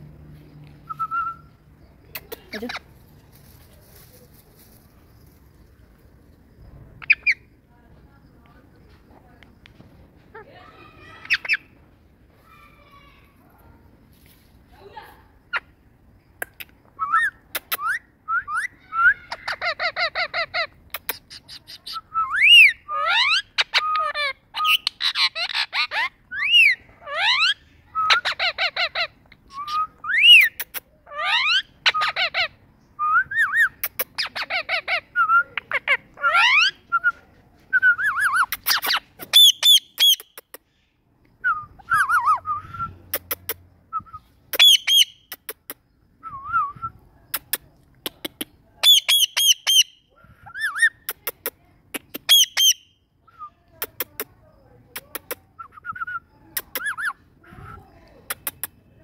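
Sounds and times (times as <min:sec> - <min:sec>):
parakeet whistling and chirping: 0:37.8 - 0:40.2, 0:44.0 - 0:45.2, 0:48.8 - 0:51.0, 0:52.2 - 0:52.9.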